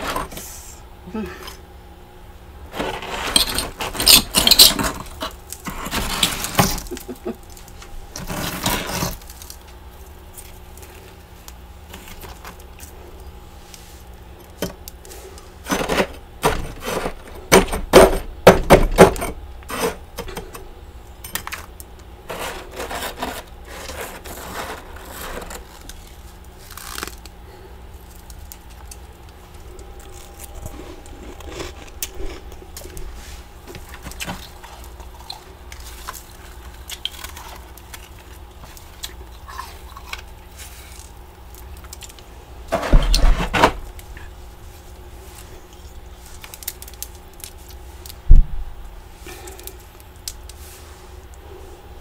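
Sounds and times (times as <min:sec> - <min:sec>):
steady low hum: 0:00.0 - 0:52.0
frost crunching in hands: 0:21.8 - 0:42.4, 0:44.9 - 0:48.2.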